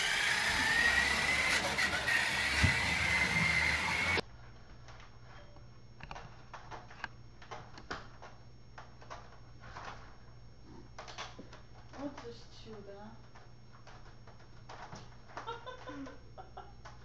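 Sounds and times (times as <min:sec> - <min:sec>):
toy truck motor whining: 0:00.0 - 0:04.2.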